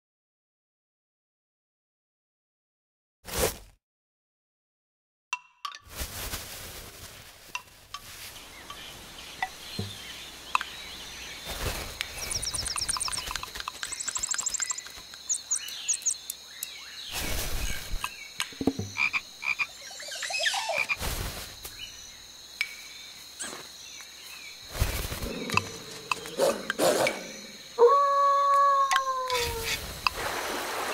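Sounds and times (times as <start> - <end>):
tissue paper crinkling: 5.9 - 8.4
frog croaking: 18.5 - 21.0, 25.2 - 28.0.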